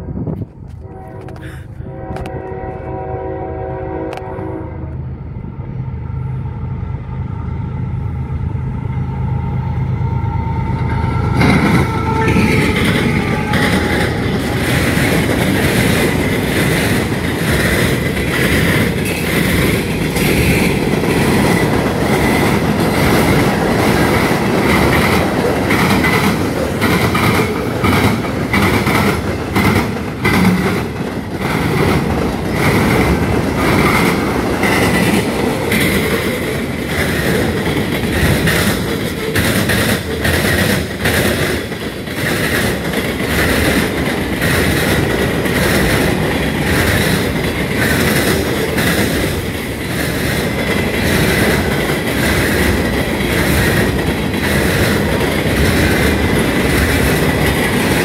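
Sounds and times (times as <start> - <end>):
train horn: 0.7 - 5.2, 9.6 - 15.2
freight cars clattering: 11.2 - 58.0.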